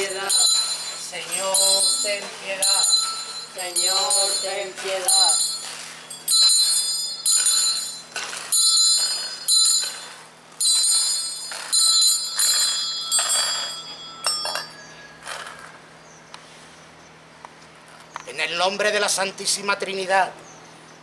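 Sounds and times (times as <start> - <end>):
small metal hand bell ringing: 0.0 - 15.3.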